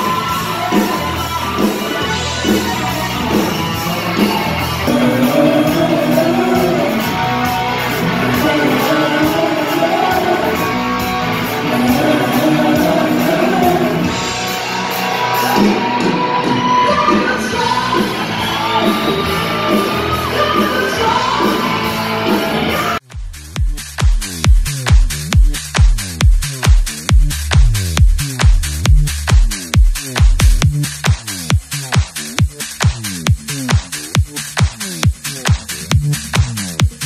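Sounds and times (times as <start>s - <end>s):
live rock music with singing: 0.0s - 23.0s
electronic dance music: 0.0s - 37.0s.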